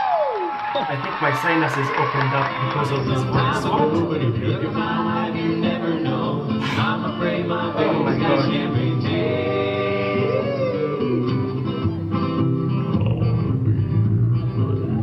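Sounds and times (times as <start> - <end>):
guitar accompaniment: 0.2 - 15.0
man singing into microphone: 3.0 - 11.4
deep bass: 11.4 - 15.0.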